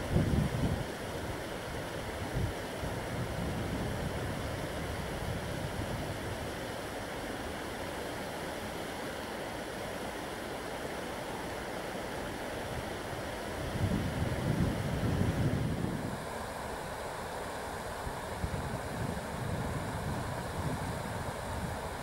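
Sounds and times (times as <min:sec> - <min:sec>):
wind rumble on microphone: 0:00.0 - 0:01.0, 0:02.1 - 0:06.6, 0:13.5 - 0:16.3, 0:18.0 - 0:22.0
river water rushing: 0:00.0 - 0:22.0.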